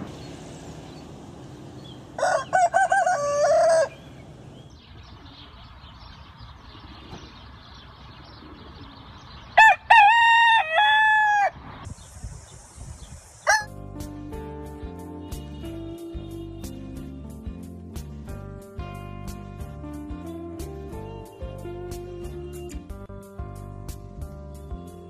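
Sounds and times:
roosters crowing: 2.0 - 4.5, 9.6 - 11.7, 13.4 - 13.8.

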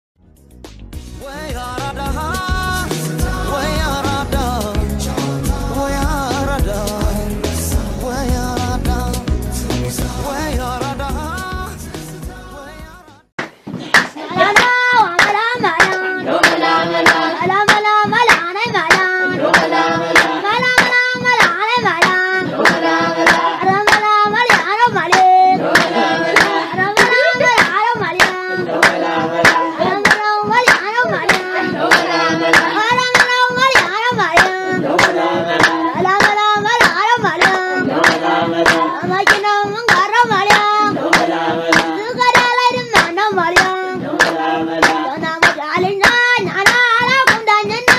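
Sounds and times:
people singing: 1.2 - 13.1, 14.2 - 47.9
hand clapping: 13.4 - 47.9.

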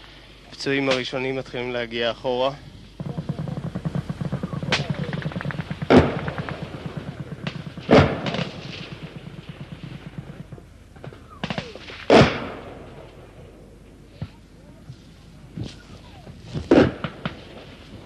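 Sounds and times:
loud echoing gunshots: 2.9 - 13.8, 16.5 - 18.0
machine-gun fire: 3.0 - 13.4, 16.5 - 18.0.

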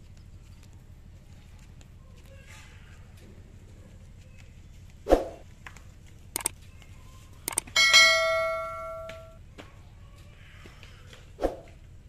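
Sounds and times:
mouse clicks: 6.4 - 6.6, 7.5 - 7.7
notification bell chime: 7.5 - 9.4.

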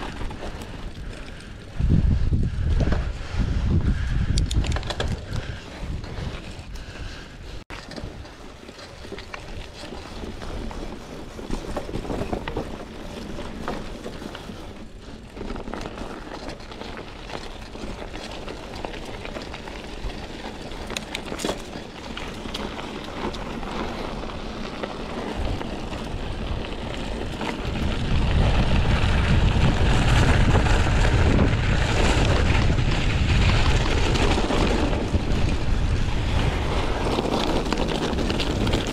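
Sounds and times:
wind buffeting microphone: 0.0 - 8.3, 17.3 - 38.9.

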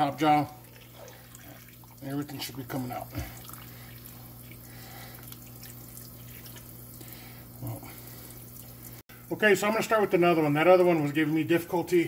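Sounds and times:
water splashing over hands: 0.6 - 7.1.

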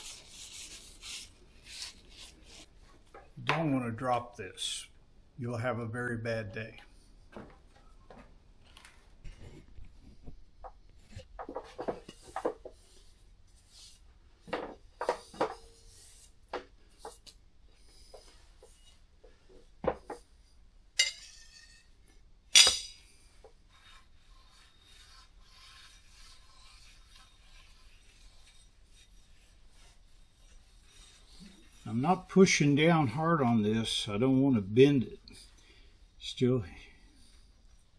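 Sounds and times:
metal rubbing on plate: 21.0 - 21.9, 22.6 - 23.1, 23.7 - 32.4.

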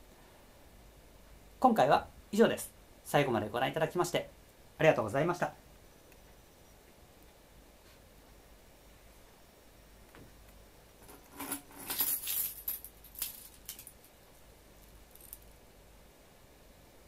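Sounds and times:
metal trinket jingling: 11.0 - 14.1.

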